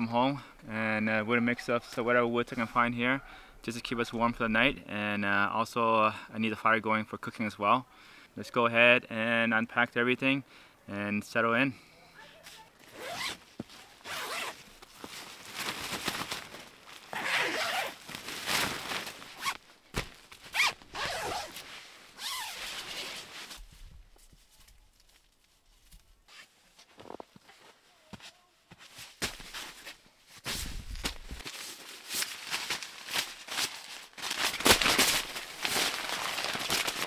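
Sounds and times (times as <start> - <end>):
tent zipper being pulled: 12.8 - 13.4, 14.0 - 14.6, 17.1 - 19.6, 20.5 - 23.6.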